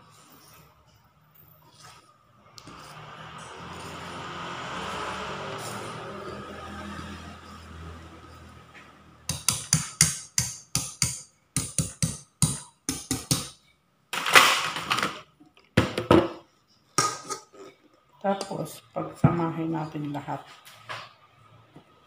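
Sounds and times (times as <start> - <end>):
whisk clinking against metal bowl: 9.3 - 13.3.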